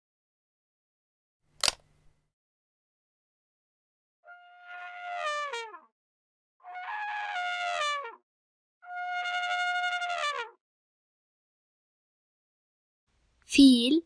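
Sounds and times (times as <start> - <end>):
elephant trumpeting: 6.6 - 8.2.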